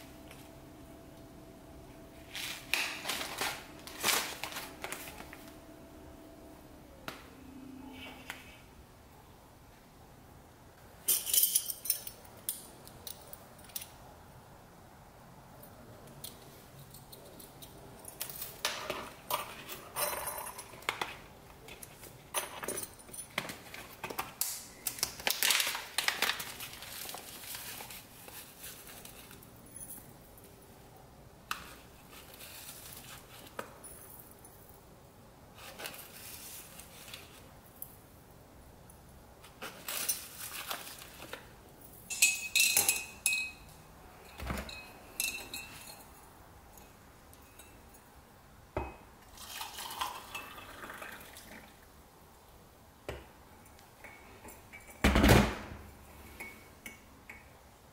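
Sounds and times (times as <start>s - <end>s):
foil pouch crinkling: 2.3s - 5.6s, 24.9s - 29.4s.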